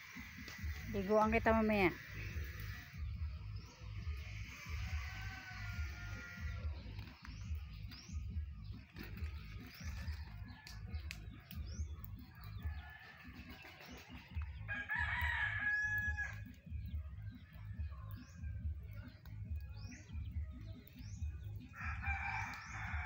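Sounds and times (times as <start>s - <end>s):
small birds chirping: 0.0s - 23.0s
rooster crowing: 4.5s - 6.6s, 14.7s - 16.5s, 21.7s - 23.0s
low rumble on microphone: 15.4s - 23.0s.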